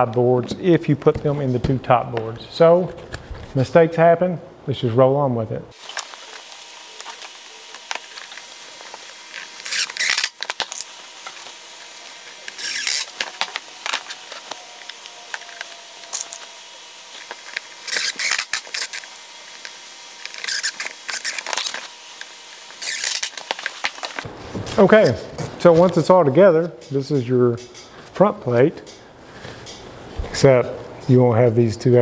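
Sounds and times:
wood scraping and rustling: 5.8s - 26.1s.

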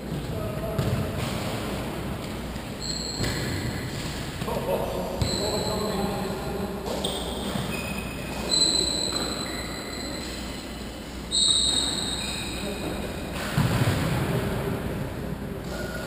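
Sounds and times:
trainers squeaking on floor: 2.8s - 3.6s, 5.2s - 6.0s, 6.9s - 13.0s.

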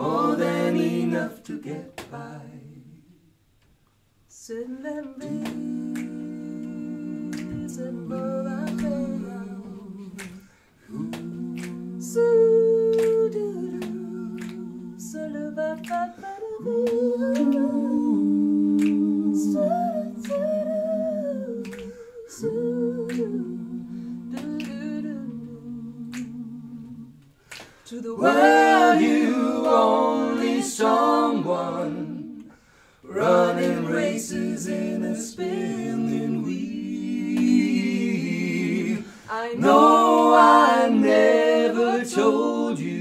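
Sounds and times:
finger snaps: 5.1s - 7.9s, 8.6s - 9.0s, 9.6s - 17.7s, 18.7s - 19.4s, 20.1s - 27.9s
voices humming in harmony: 11.0s - 26.9s.

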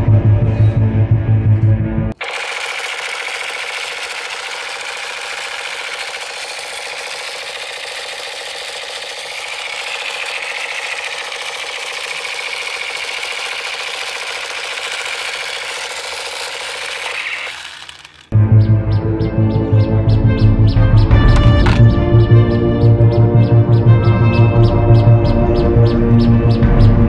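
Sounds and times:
toy buzzing rattle sound effect: 2.2s - 18.4s, 21.1s - 22.0s.

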